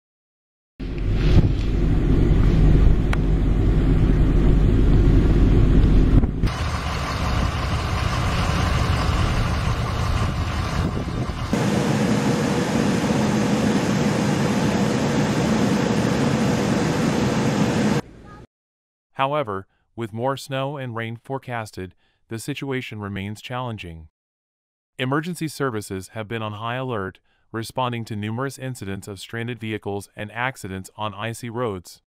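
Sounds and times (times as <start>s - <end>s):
car engine and tyres: 0.8s - 18.0s
heavy low rumble: 0.8s - 18.0s
traffic in snow: 6.5s - 18.0s.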